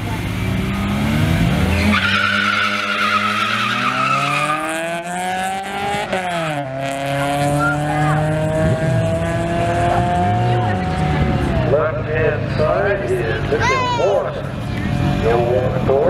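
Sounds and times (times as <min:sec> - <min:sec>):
car engines revving: 0:00.0 - 0:16.0
tyres squealing: 0:01.7 - 0:04.7.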